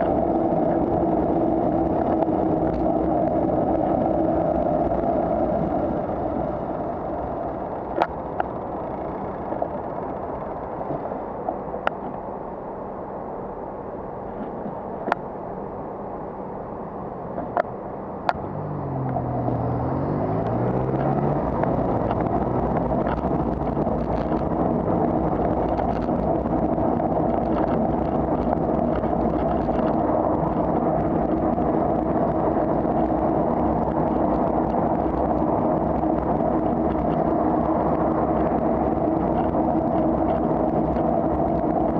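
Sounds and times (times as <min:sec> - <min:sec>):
engine pitch dipping and climbing: 0:00.0 - 0:12.4, 0:16.5 - 0:41.9
road and wind noise: 0:00.0 - 0:41.9
cars passing: 0:14.2 - 0:41.9.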